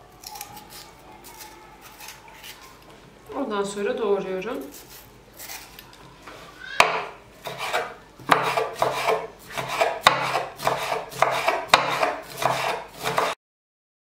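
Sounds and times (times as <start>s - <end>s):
knife chopping on wooden board: 6.8s - 13.4s.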